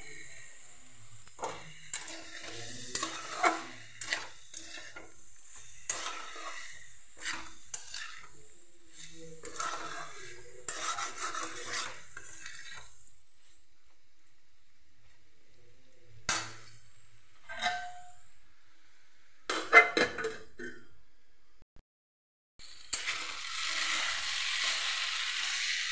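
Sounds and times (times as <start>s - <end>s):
food sizzling: 0.0s - 15.2s, 22.6s - 25.9s
metal spatula scraping pan: 1.3s - 13.6s, 17.4s - 18.3s.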